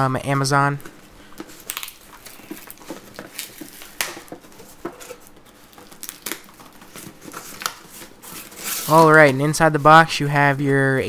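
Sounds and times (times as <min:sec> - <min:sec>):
cardboard being handled: 0:00.8 - 0:10.0
scissors cutting packing tape: 0:05.0 - 0:09.2.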